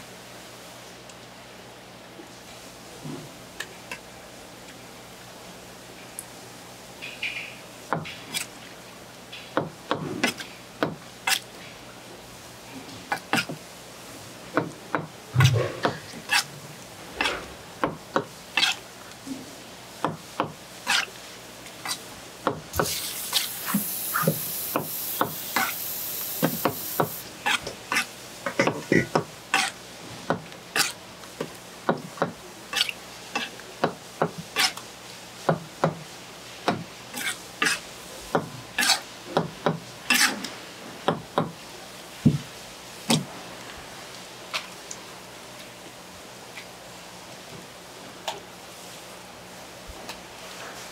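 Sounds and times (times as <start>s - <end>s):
hiss: 22.7s - 27.3s.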